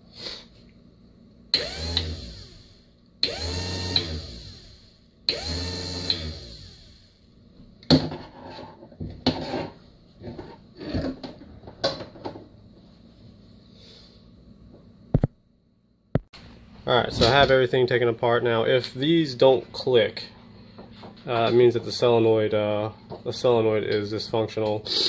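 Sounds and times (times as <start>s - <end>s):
electric motor and pump whining: 1.5s - 7.2s.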